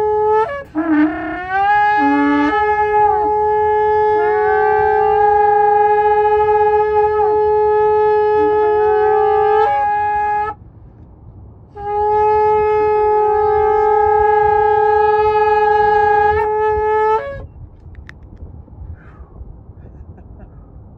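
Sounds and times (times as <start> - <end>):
shofar blasts: 0.0 - 10.6, 11.7 - 17.6.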